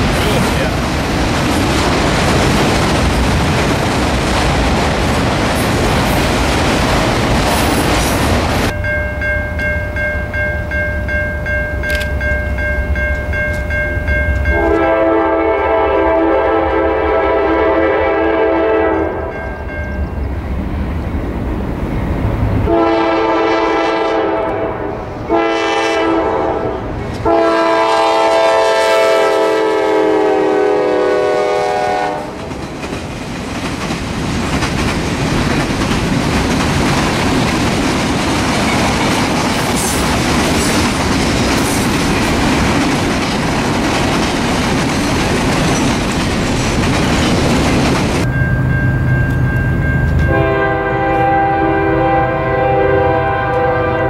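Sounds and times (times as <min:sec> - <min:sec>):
freight cars rumbling and clattering: 0:00.0 - 0:08.8, 0:32.5 - 0:50.3
train air horn blasts: 0:14.5 - 0:19.4, 0:22.7 - 0:32.4, 0:50.2 - 0:54.0.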